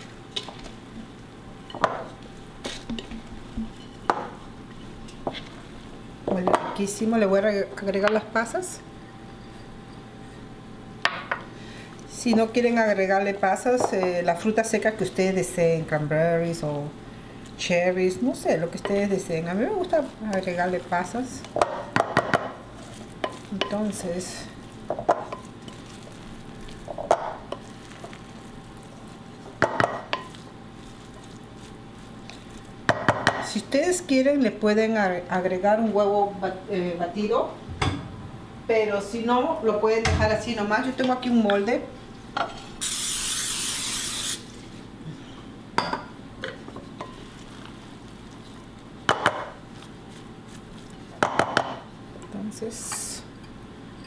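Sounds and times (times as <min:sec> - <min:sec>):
spoon stirring stuffing in glass bowl: 0:22.6 - 0:32.9
cooking spray hissing: 0:42.8 - 0:44.9.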